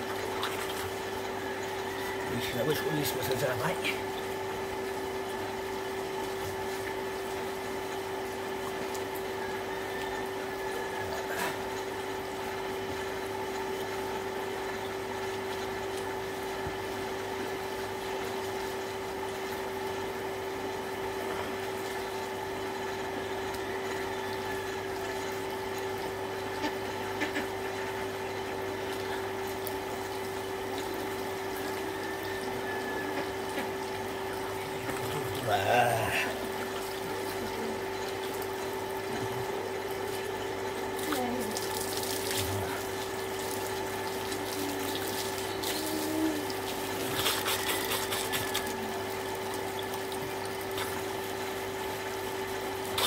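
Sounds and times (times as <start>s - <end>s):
electric water pump humming: 0.0s - 53.0s
water splashing on ground: 41.0s - 48.8s.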